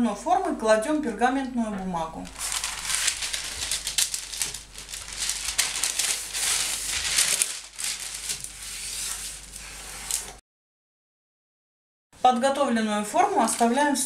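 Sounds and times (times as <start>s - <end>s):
baking paper rustling and crinkling: 1.7s - 10.4s, 13.0s - 14.0s.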